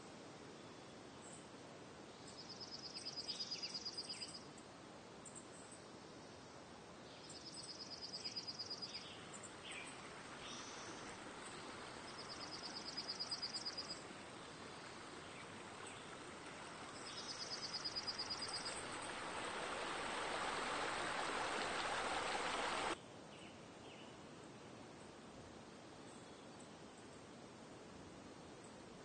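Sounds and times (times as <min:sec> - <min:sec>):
running water hiss: 0:00.0 - 0:23.0.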